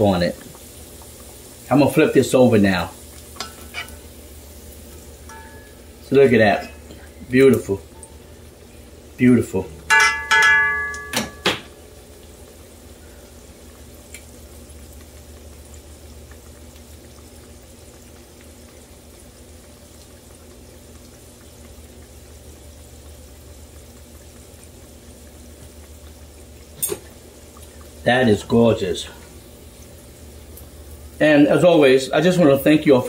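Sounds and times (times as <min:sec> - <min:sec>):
food sizzling in hot oil: 0:00.0 - 0:33.0
metal spoon clinking on pot: 0:05.3 - 0:05.8, 0:09.9 - 0:11.6.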